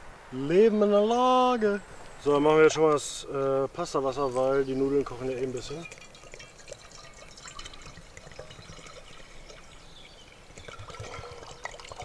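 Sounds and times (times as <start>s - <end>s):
water pouring into metal pot: 4.3s - 12.0s.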